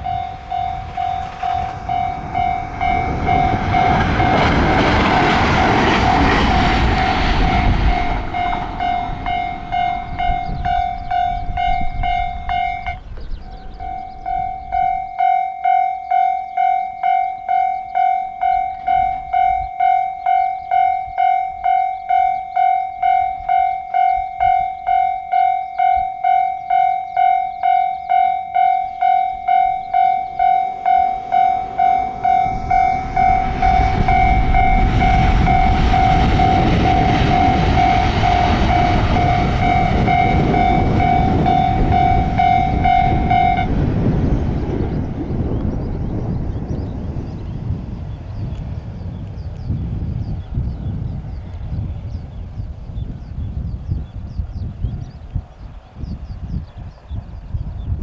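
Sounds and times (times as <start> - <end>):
level crossing alarm dinging: 0.0 - 43.9
locomotive wheels rumbling on rail: 0.0 - 58.0.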